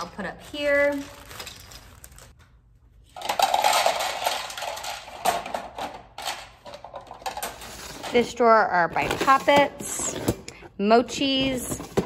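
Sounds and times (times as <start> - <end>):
small plastic toys clattering: 3.1 - 7.8.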